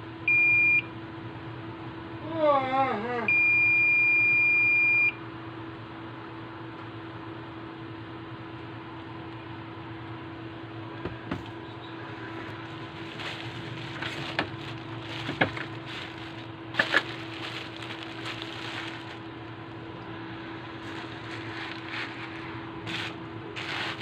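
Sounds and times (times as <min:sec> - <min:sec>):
steady background hum: 0:00.0 - 0:24.0
bubble wrap rustling: 0:12.5 - 0:19.4, 0:20.8 - 0:24.0.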